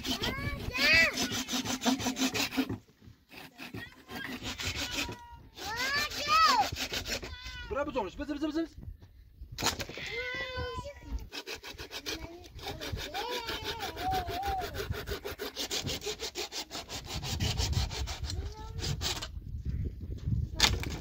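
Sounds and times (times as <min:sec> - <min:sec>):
hand saw sawing wood: 0:00.0 - 0:07.6, 0:11.1 - 0:19.4.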